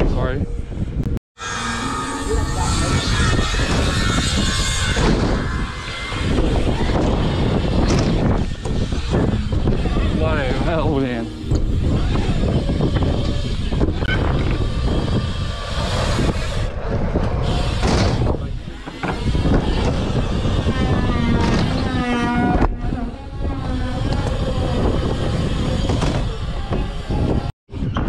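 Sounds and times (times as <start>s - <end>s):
wind on microphone: 0.0s - 28.0s
wavering pitched sound: 1.4s - 7.3s, 8.5s - 17.6s
bike tyres rolling on ramps: 2.8s - 28.0s.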